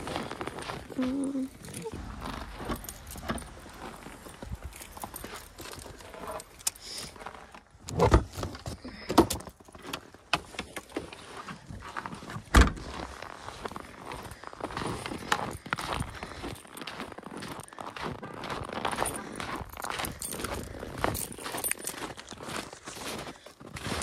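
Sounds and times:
gear rustling: 1.4s - 7.7s.

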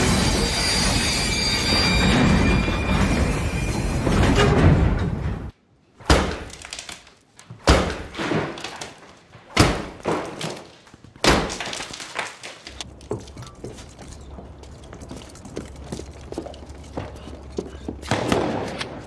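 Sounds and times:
crumbling falling debris: 6.4s - 7.5s, 8.1s - 16.6s
sledgehammer striking wall: 7.6s - 8.6s, 9.6s - 10.4s.

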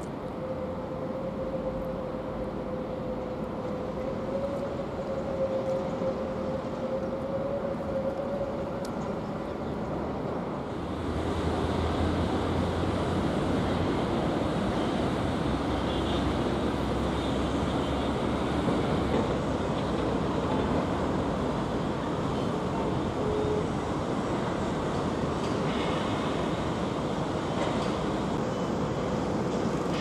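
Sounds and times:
distant high-speed train rush: 0.0s - 30.0s
maglev train humming whine: 0.0s - 30.0s.

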